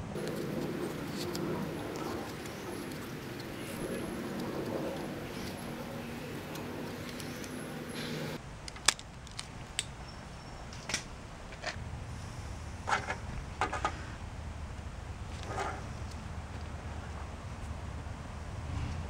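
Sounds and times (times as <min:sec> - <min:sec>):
steady low hum: 0:00.0 - 0:08.4.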